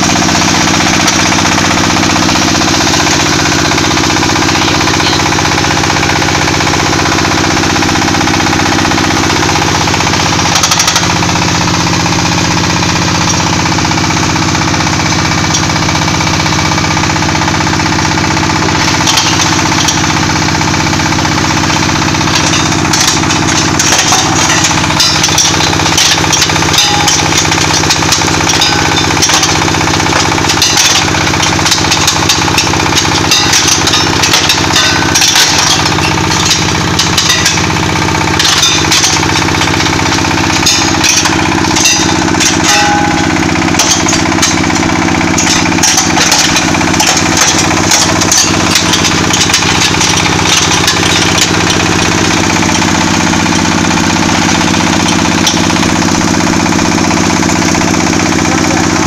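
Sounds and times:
diesel engine running: 0.0s - 59.0s
crusher smashing brick and stone: 17.8s - 56.1s.

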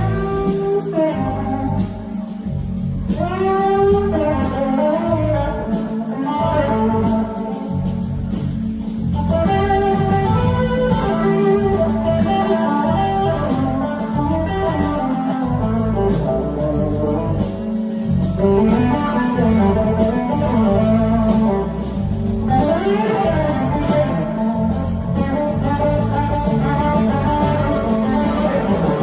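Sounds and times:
blues-rock band playing: 0.0s - 29.0s
sliding electric guitar notes: 9.2s - 29.0s.

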